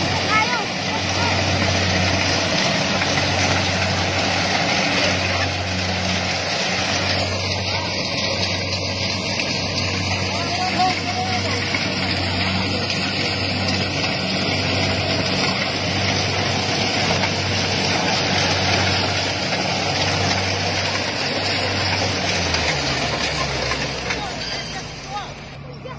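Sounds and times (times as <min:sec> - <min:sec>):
diesel engine hum: 0:00.0 - 0:25.9
harvester cutting gear whirring: 0:00.0 - 0:25.9.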